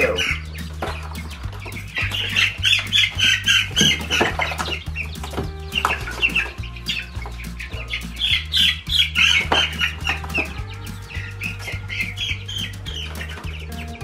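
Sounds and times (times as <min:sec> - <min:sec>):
background music with bass: 0:00.0 - 0:14.0
chicks peeping: 0:00.0 - 0:14.0.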